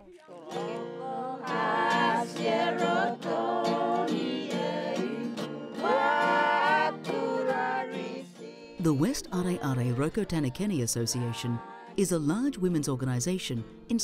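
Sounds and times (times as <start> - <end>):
women singing in harmony: 0.0 - 12.0
acoustic guitar: 0.0 - 14.0.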